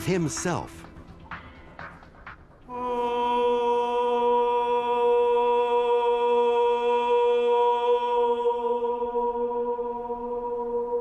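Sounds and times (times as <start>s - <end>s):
man singing a long note: 2.7s - 10.3s.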